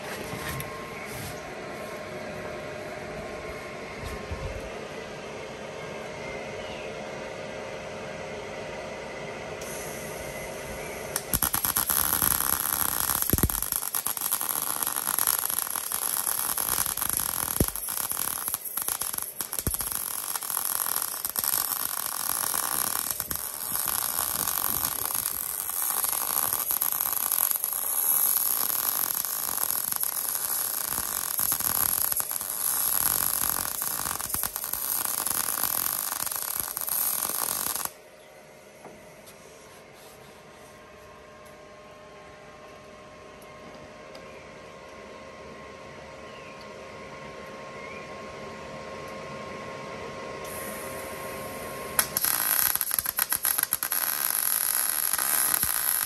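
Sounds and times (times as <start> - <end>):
welder arc crackling: 9.6 - 38.0, 52.0 - 56.0.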